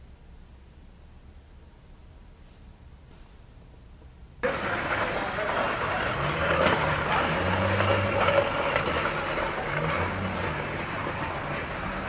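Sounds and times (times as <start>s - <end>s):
traffic hiss: 0.0s - 12.0s
vehicle engine running: 4.4s - 12.0s.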